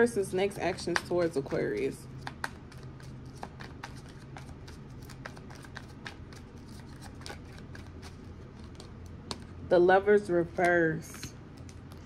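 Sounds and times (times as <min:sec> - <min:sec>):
cards being shuffled: 0:00.9 - 0:09.5.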